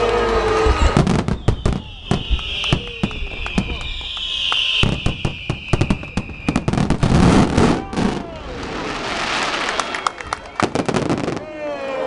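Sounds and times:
high falling whistle: 0.0s - 8.4s
firework crackling: 0.0s - 11.5s
firework bursts and bangs: 0.0s - 11.6s.

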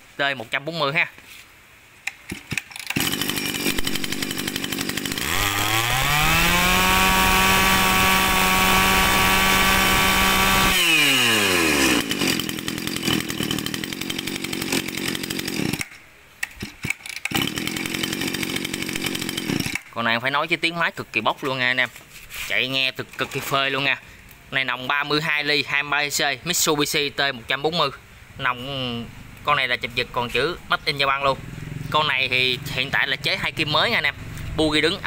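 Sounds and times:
brush cutter engine revving: 2.1s - 20.0s.

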